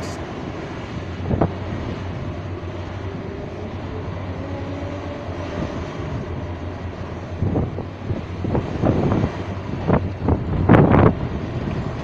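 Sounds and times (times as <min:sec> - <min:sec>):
faint wavering whine: 0:00.0 - 0:08.0
excavator diesel engine drone: 0:00.0 - 0:12.0.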